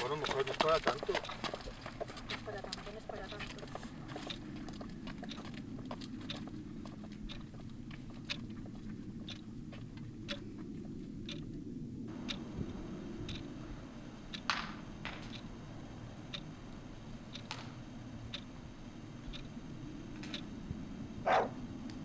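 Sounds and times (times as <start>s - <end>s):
clock-like ticking: 0.0s - 1.6s, 2.2s - 4.4s, 5.2s - 6.5s, 7.2s - 8.6s, 10.2s - 10.4s, 12.1s - 12.5s, 13.2s - 13.5s, 14.3s - 15.5s, 16.3s - 18.6s, 19.2s - 19.6s, 20.2s - 20.5s
low steady hum: 0.0s - 22.0s.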